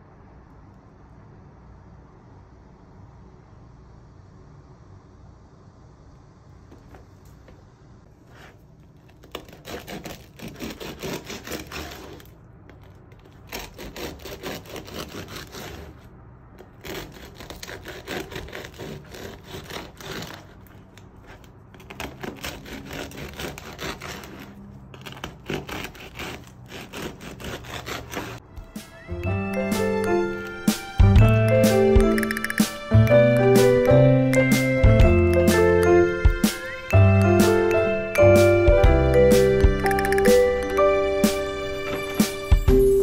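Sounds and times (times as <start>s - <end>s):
bread knife sawing crisp crust: 8.2s - 12.4s, 13.2s - 28.4s.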